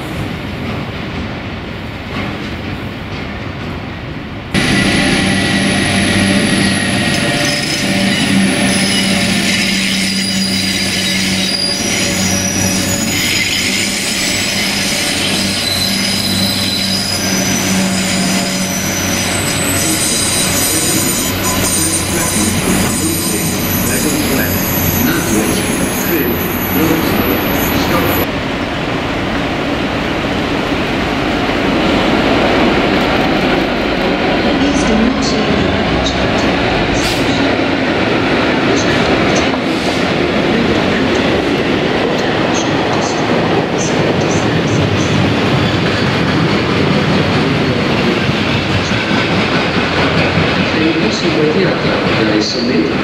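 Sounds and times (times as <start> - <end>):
train wheel squeal: 4.7 - 28.3.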